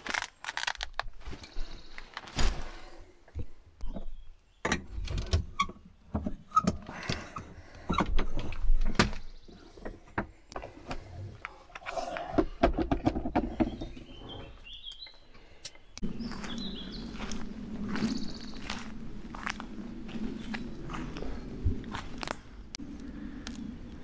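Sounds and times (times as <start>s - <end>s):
bird chirping: 13.4s - 22.5s
footsteps on forest floor: 16.0s - 22.6s.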